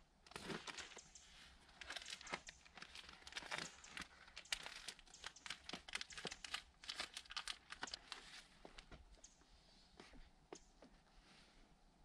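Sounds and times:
plastic membrane crinkling: 0.3 - 9.0.

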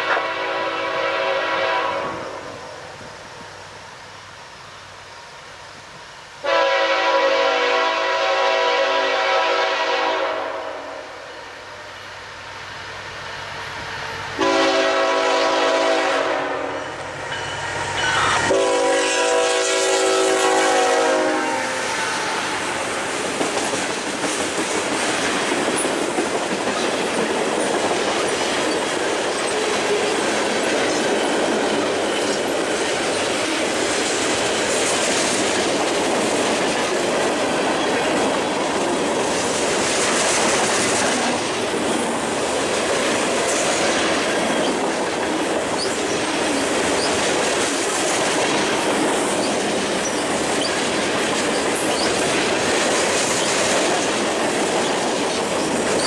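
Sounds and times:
locomotive horn blasts: 0.0 - 2.4, 6.4 - 11.0, 14.4 - 16.8, 18.2 - 22.5
train cars rolling on rails: 0.0 - 56.0.

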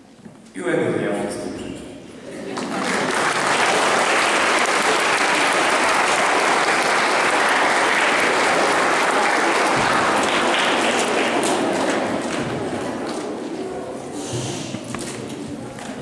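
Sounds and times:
audience applauding: 2.5 - 13.2.

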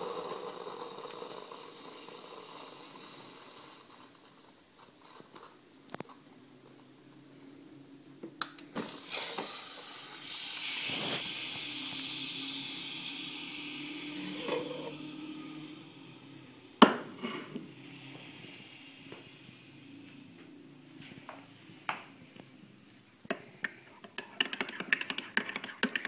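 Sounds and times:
pump hum: 0.0 - 5.3, 8.8 - 20.2
coffee machine steam hiss: 0.0 - 6.1, 8.8 - 20.4.

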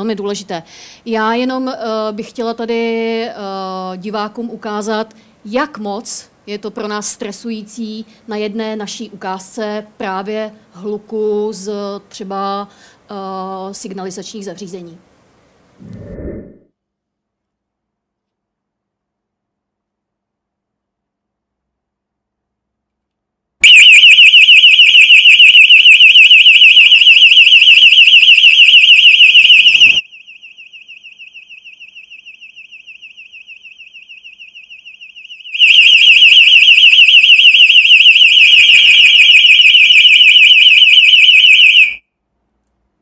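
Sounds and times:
warbling alarm siren: 23.6 - 42.0.

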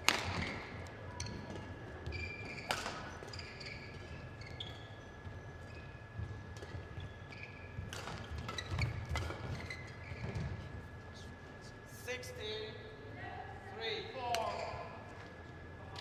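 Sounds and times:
racket hitting shuttlecock: 0.0 - 0.6, 2.7 - 3.1, 7.9 - 9.5
shoes squeaking on court: 1.2 - 10.7.

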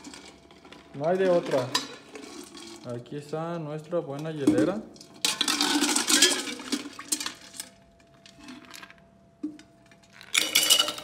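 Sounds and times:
ice cubes clattering into metal shaker: 0.0 - 2.9, 5.2 - 9.0, 10.0 - 11.0
ice scoop rattling through ice cubes: 0.0 - 3.0, 5.2 - 9.0, 10.0 - 11.0.

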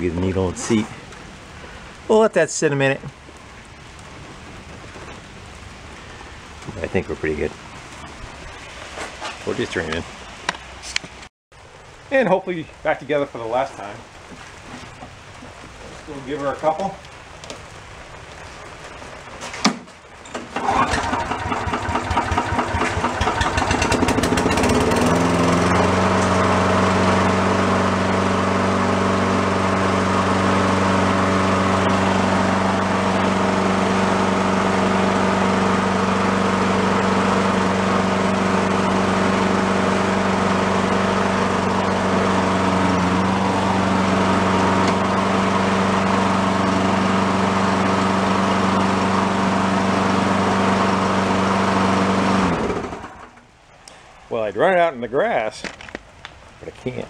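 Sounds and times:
lawn mower engine starting: 20.3 - 53.6.

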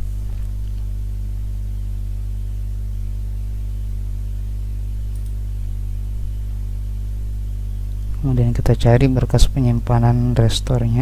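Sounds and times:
mains hum: 0.0 - 11.0
faint click: 5.1 - 5.4.

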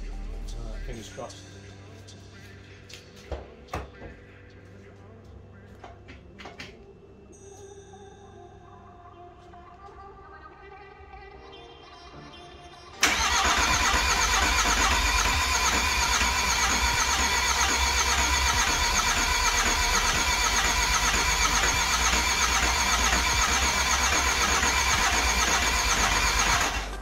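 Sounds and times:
diesel engine running: 13.0 - 27.0.

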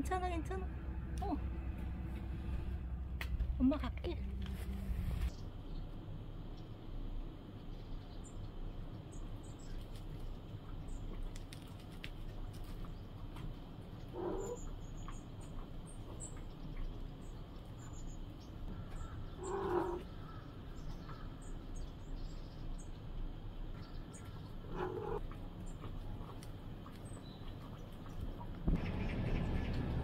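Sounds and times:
crow cawing: 18.7 - 21.3.

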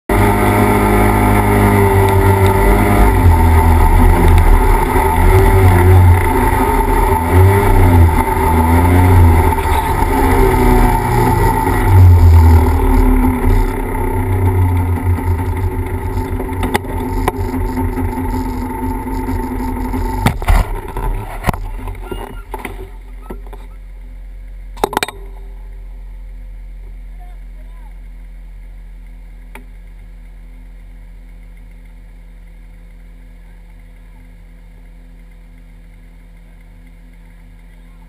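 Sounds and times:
off-road vehicle engine revving: 0.1 - 38.0.

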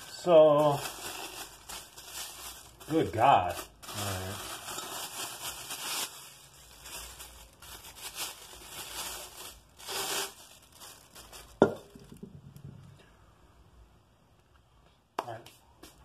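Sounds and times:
plastic wrap crinkling and tearing: 0.0 - 12.6.

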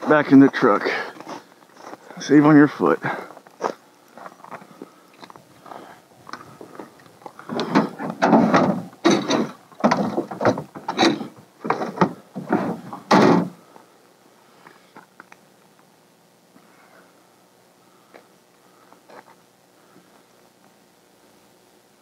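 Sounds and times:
wooden bumps and scrapes: 6.3 - 13.6.

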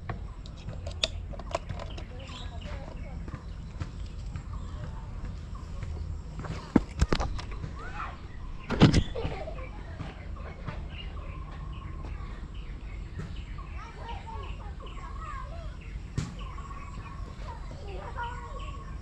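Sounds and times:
small birds chirping: 0.0 - 19.0
loud close thump: 8.6 - 9.4.

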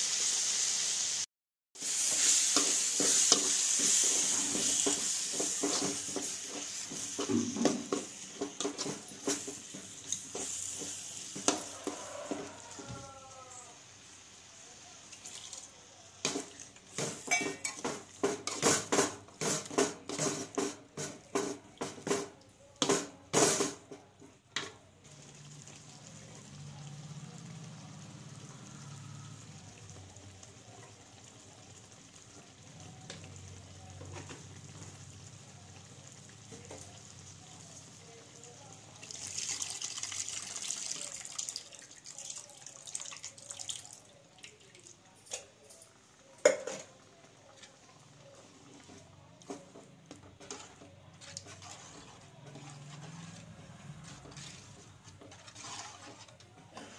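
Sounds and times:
water pouring into a pot: 15.0 - 15.8, 38.8 - 45.3
metal spoon scraping a pot: 50.2 - 56.9.

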